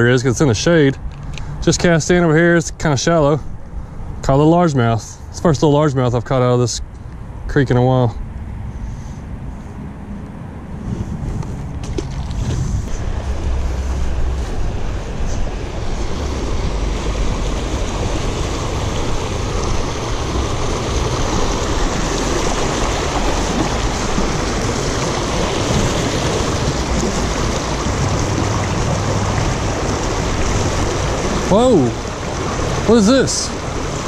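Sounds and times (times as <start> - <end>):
creek water rushing over rocks: 11.7 - 34.0.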